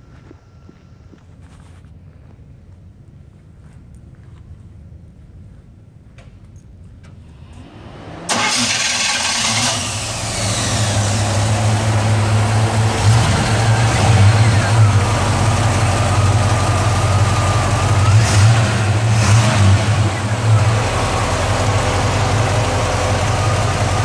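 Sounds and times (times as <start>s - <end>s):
engine starting and idling: 7.3s - 24.0s.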